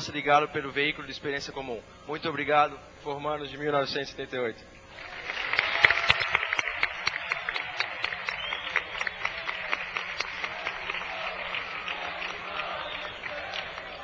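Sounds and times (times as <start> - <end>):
audience applauding: 4.9 - 14.0.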